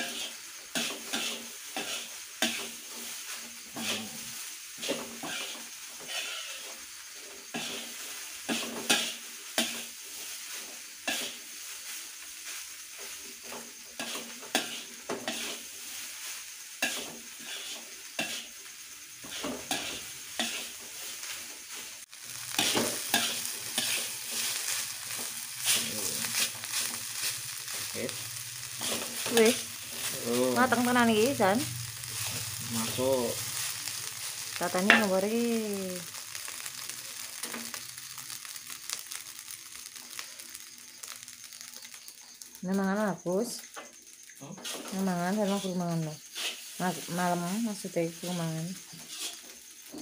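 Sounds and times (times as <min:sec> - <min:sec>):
metal spatula scraping wok: 0:00.0 - 0:06.8, 0:07.4 - 0:35.2, 0:44.6 - 0:47.2, 0:48.9 - 0:49.6
rice sizzling in a wok: 0:00.0 - 0:50.0.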